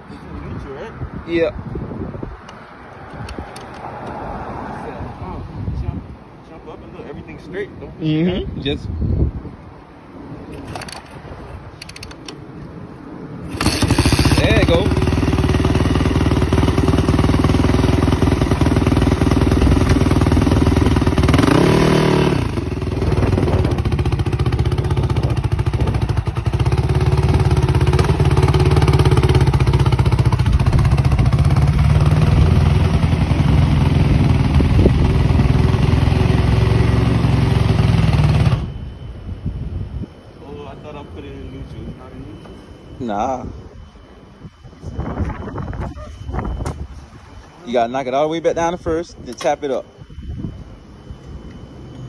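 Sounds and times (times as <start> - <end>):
motorcycle engine running: 13.5 - 38.9.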